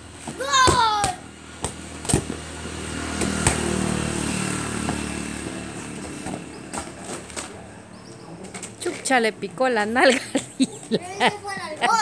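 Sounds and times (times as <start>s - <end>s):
football kicked thuds: 0.2s - 2.4s
vehicle engine passing by: 1.4s - 8.8s.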